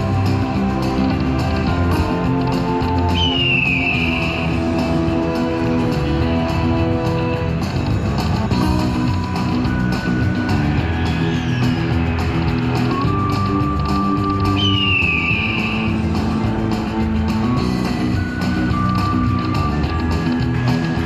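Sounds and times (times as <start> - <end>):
slot machine bonus music: 7.8 - 21.0.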